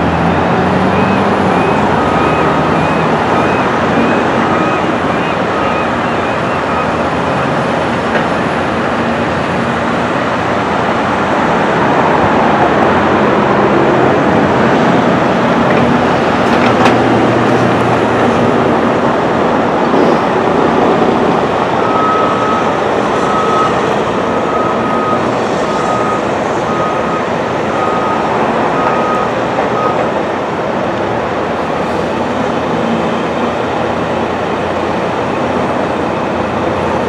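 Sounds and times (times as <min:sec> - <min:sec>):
excavator diesel engine running: 0:00.0 - 0:37.0
reversing alarm beeping: 0:00.2 - 0:08.1, 0:21.7 - 0:30.2.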